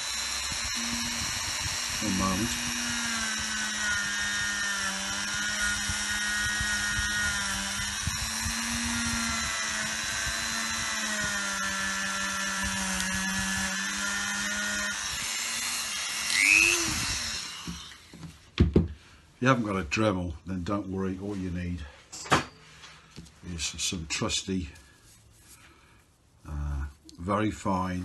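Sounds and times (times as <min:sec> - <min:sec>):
rotary tool high whine: 0:00.0 - 0:18.3.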